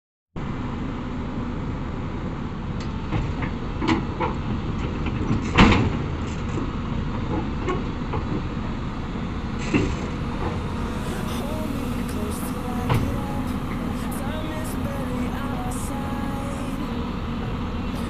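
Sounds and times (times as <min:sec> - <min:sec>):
excavator diesel engine running: 0:00.4 - 0:18.0
metal clanks and knocks: 0:03.1 - 0:08.5, 0:09.6 - 0:10.6.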